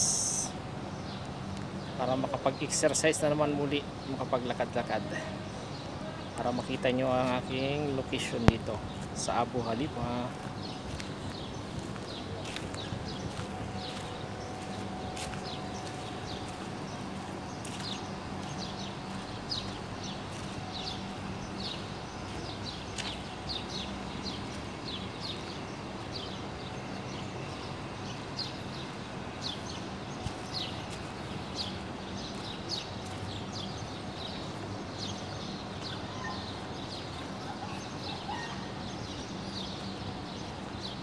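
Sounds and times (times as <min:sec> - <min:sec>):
low background hum: 0:00.0 - 0:41.0
footsteps on gritty dirt: 0:08.2 - 0:26.7, 0:28.8 - 0:35.9.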